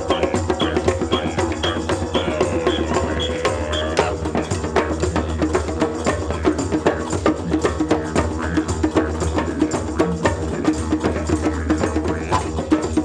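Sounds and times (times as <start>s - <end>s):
djembes playing fast rhythm: 0.0s - 13.0s.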